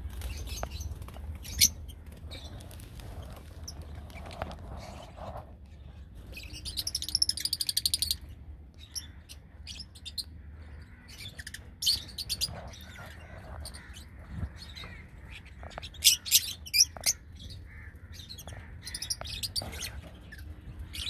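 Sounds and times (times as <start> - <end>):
lovebirds chirping: 0.1 - 21.0.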